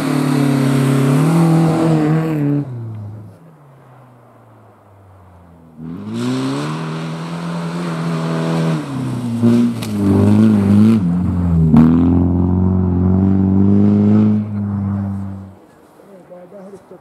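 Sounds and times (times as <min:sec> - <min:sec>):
rally car engine on hard throttle: 0:00.0 - 0:03.4, 0:05.6 - 0:15.6
sharp crack: 0:09.4 - 0:10.8.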